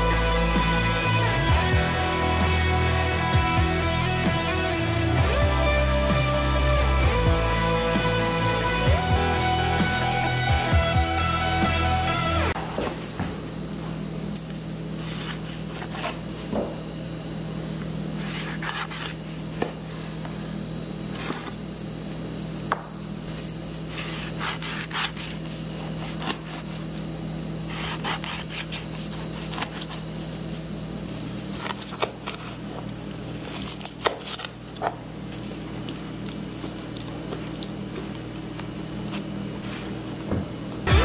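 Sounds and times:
steady low hum: 0:00.0 - 0:41.0
knife scraping on cutting board: 0:15.0 - 0:16.3, 0:18.2 - 0:19.7, 0:21.1 - 0:21.6, 0:23.8 - 0:26.9, 0:27.7 - 0:30.1.

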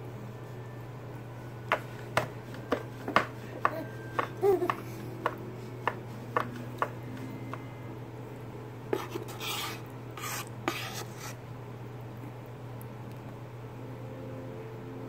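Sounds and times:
steady low hum: 0:00.0 - 0:15.0
baby cooing: 0:03.6 - 0:05.0.

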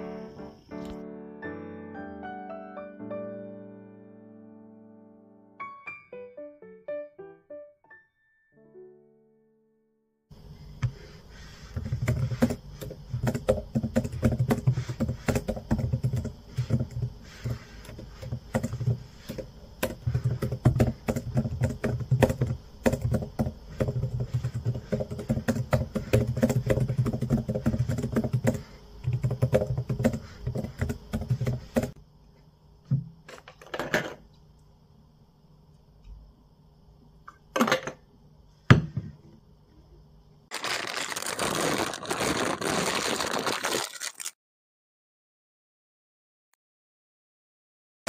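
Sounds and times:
typing on laptop keyboard: 0:11.8 - 0:32.0.

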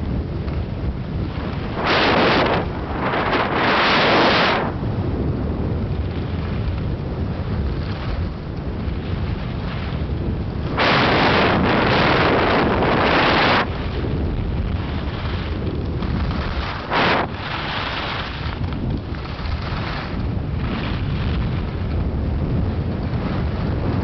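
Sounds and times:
skis running over snow: 0:00.0 - 0:24.0
wind rushing over microphone: 0:00.0 - 0:24.0.

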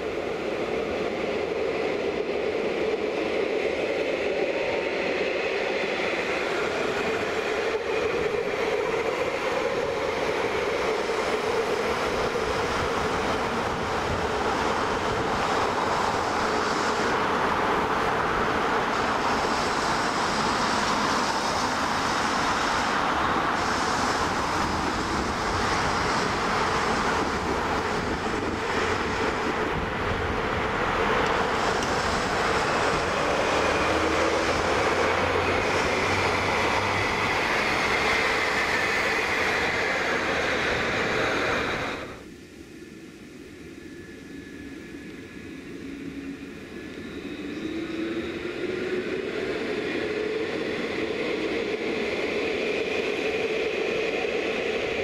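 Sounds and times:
wind rushing: 0:00.0 - 0:42.2
road traffic: 0:00.0 - 0:43.0
faint high whine: 0:00.0 - 0:55.0.

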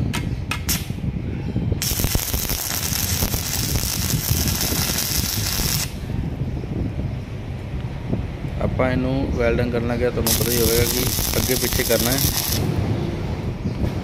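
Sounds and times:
steady low rumble: 0:00.0 - 0:14.0
arc welding crackling: 0:01.8 - 0:06.0, 0:10.2 - 0:12.7.

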